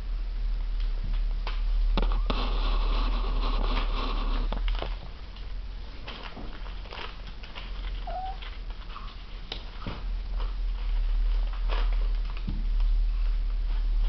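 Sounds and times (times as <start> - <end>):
steady low hum: 0.0 - 14.0
wrapper rustling: 1.9 - 14.0
kitten mew: 8.0 - 8.4.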